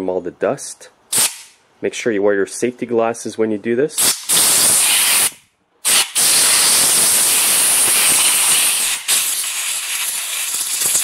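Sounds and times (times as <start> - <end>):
compressed air blow gun hissing: 4.0 - 11.0.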